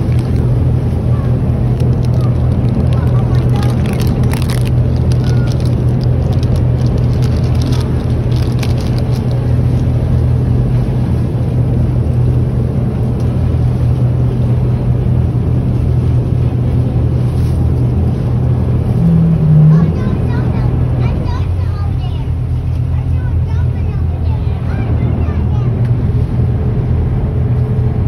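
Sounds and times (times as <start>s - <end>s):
boat motor droning: 0.0s - 28.0s
water splashing against hull: 0.0s - 28.0s.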